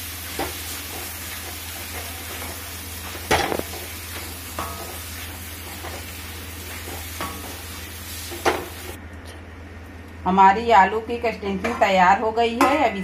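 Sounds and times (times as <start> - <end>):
sizzling: 0.0 - 9.0.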